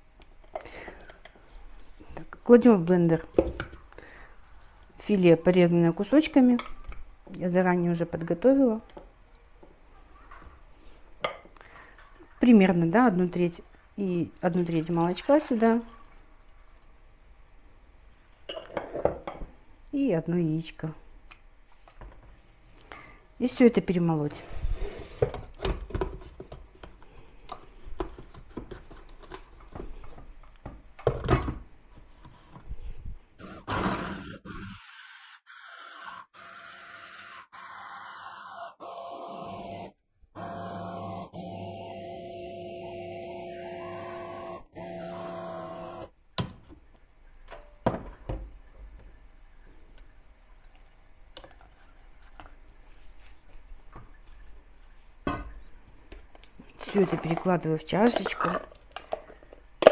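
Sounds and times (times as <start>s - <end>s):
electric hand blender running: 33.5s - 46.1s
spoon scraping plastic bowl: 56.7s - 59.4s.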